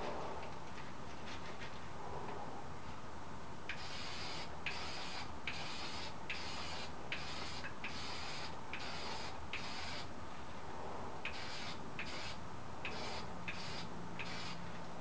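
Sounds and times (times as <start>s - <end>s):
aerosol spray can hissing: 3.7s - 10.1s, 11.3s - 14.6s.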